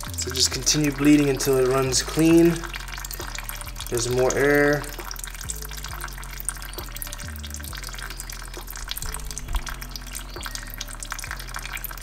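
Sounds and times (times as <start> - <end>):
fluid trickling with crackling bubbles: 0.0 - 12.0
soft background music: 0.0 - 12.0.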